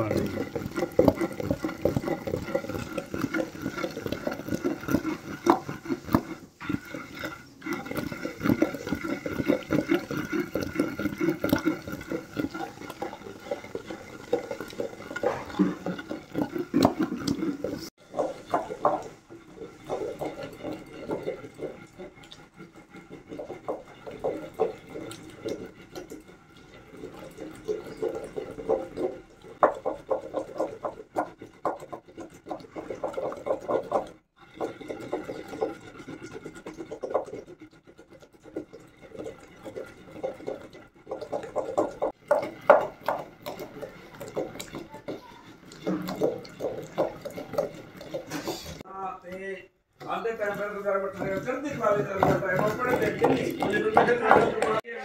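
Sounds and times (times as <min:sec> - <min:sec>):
pestle pounding paste in stone mortar: 0:00.0 - 0:48.9, 0:50.0 - 0:55.0.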